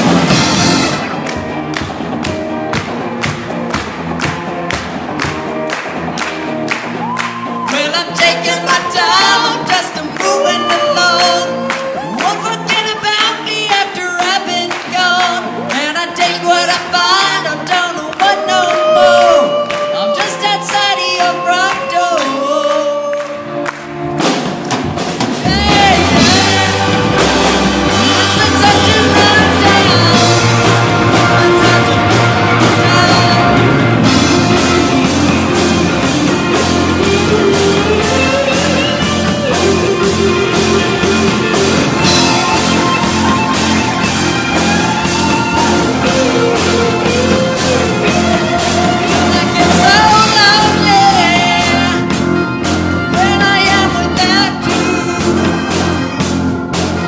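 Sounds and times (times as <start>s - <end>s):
rock band playing: 0.0s - 57.0s
hand claps: 1.2s - 7.8s, 17.6s - 25.0s
person singing: 7.4s - 23.6s, 25.3s - 57.0s.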